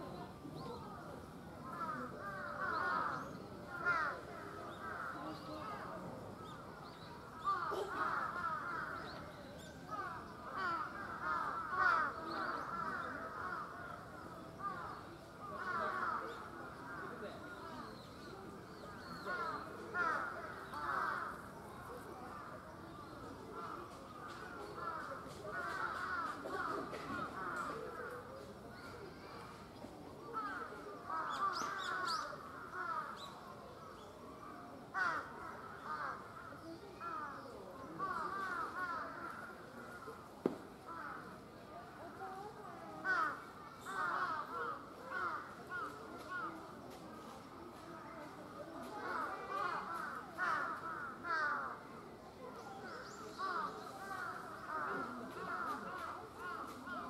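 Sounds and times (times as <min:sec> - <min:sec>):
many birds calling: 0:06.4 - 0:29.2, 0:30.3 - 0:34.1
crows cawing: 0:09.9 - 0:14.0, 0:49.0 - 0:51.8.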